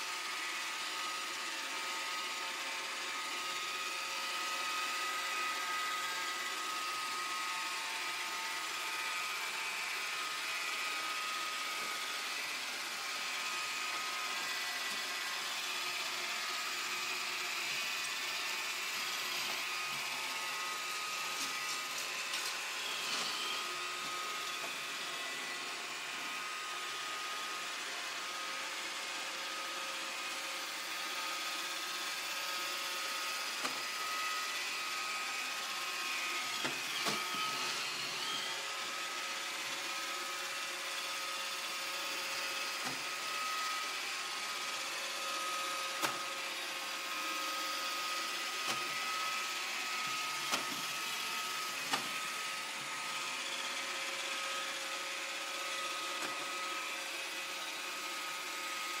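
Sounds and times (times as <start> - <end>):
robot vacuum whirring: 0.0 - 59.0.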